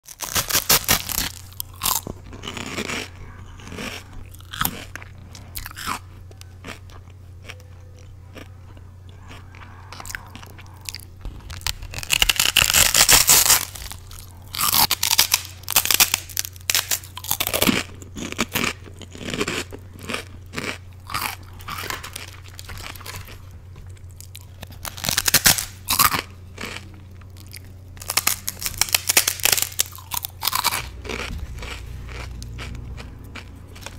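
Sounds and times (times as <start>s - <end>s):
low hum: 0.1s - 33.9s.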